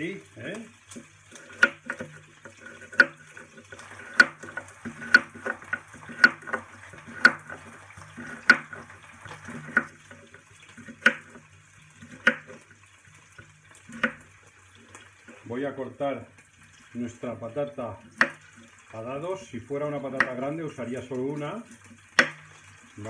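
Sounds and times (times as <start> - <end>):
meat sizzling in a frying pan: 0.0 - 23.0
knife chopping on cutting board: 1.4 - 10.2, 10.8 - 11.4, 12.0 - 12.6, 13.9 - 14.3, 18.1 - 18.4, 20.1 - 20.4, 22.2 - 22.4.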